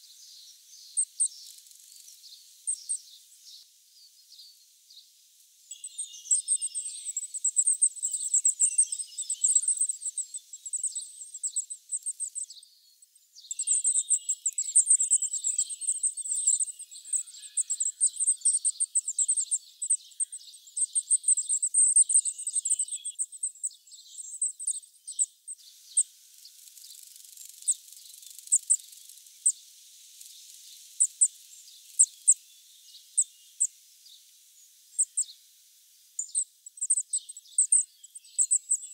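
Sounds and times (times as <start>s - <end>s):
thin high bird calls: 5.7s - 12.6s, 13.5s - 26.1s, 34.9s - 35.4s, 36.2s - 38.9s
nestlings begging chatter: 5.9s - 12.5s, 13.5s - 25.3s, 35.0s - 35.3s, 36.2s - 38.9s.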